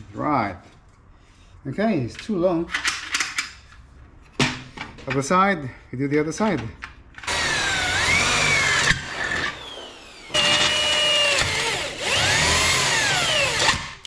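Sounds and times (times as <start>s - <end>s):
electric drill boring through metal: 7.2s - 14.0s.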